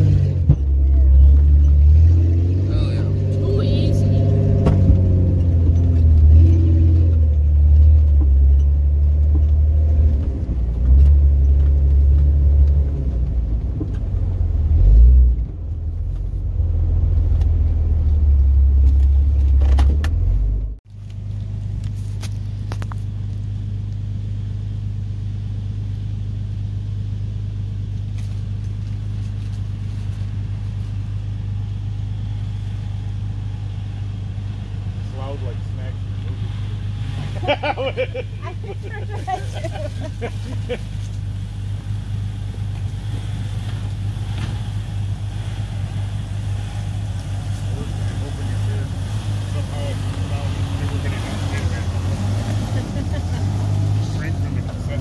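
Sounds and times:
vehicle engine rumbling: 0.0 - 55.0
rattles over bumps: 4.2 - 14.3.

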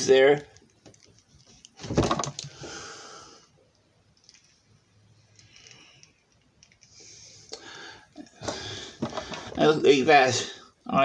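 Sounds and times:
plastic rubbing and clicking: 0.4 - 2.6.

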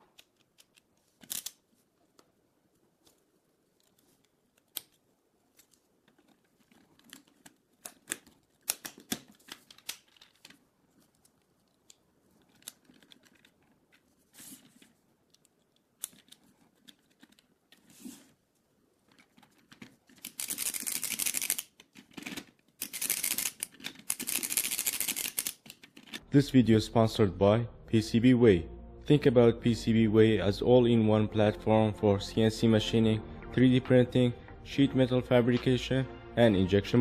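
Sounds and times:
plastic parts clicking and snapping: 0.0 - 2.3, 3.8 - 14.1, 15.2 - 17.8, 19.0 - 26.2
rapid plastic ratcheting: 19.4 - 26.2.

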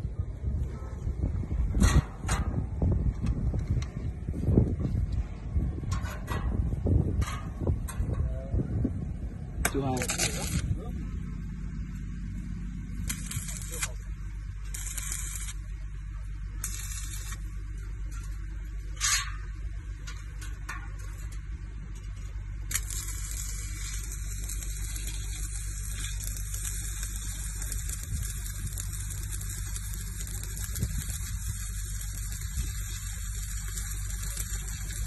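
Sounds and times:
low hum: 0.0 - 35.0
welding arc crackling and hissing: 9.7 - 10.8, 12.9 - 15.8, 16.5 - 19.3, 22.0 - 35.0.

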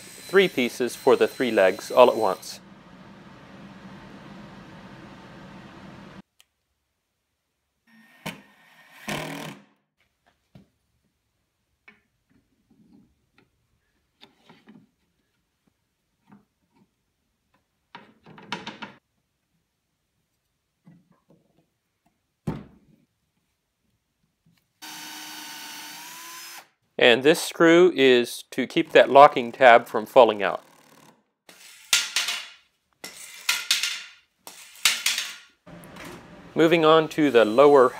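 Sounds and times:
cordless drill drilling into wood: 24.8 - 26.7.

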